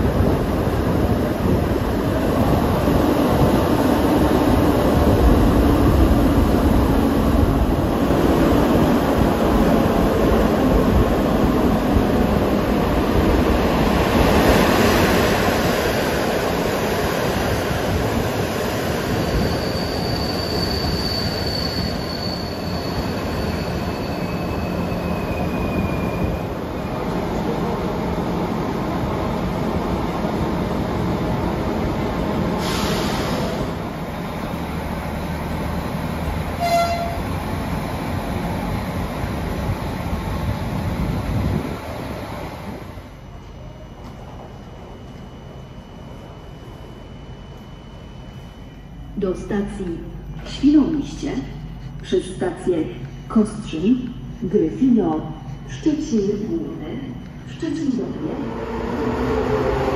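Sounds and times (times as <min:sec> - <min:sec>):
railcar running gear rumble: 0:00.0 - 0:59.9
wheels or brakes squealing: 0:19.1 - 0:26.5.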